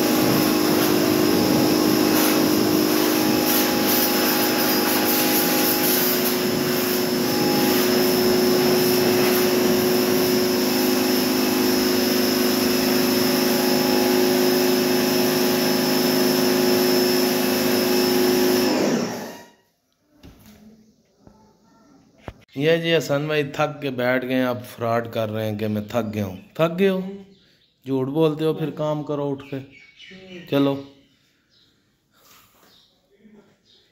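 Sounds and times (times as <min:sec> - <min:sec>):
water spray hissing: 0:00.0 - 0:12.7
pressure washer motor hum: 0:00.0 - 0:19.5.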